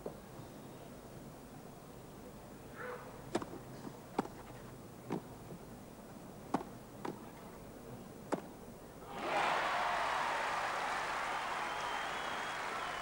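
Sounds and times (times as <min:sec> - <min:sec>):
racquets striking tennis ball: 0:06.5 - 0:07.2, 0:08.3 - 0:08.5.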